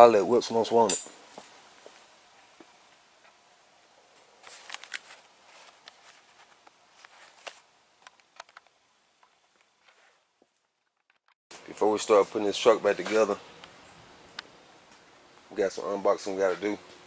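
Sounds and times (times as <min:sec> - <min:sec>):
packaging clicks and rustles: 0:04.4 - 0:08.7.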